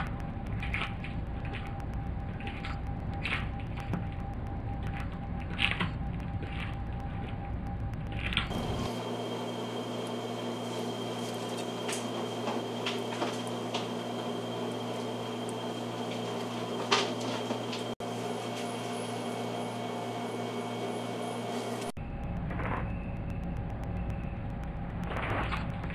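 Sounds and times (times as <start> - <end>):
faint ticks and click: 0.0 - 8.5
steady hum: 0.0 - 25.9.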